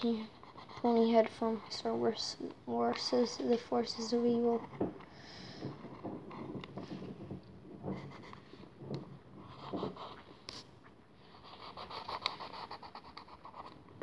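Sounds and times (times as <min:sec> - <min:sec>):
pencil sketching on paper: 0:00.0 - 0:05.0, 0:07.9 - 0:08.5, 0:11.3 - 0:13.8.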